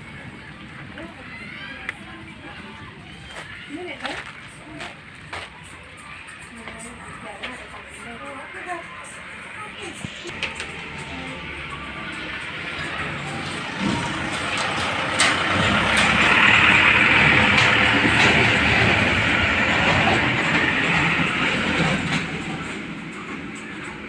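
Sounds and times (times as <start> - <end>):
truck driving past rattling: 10.2 - 22.6.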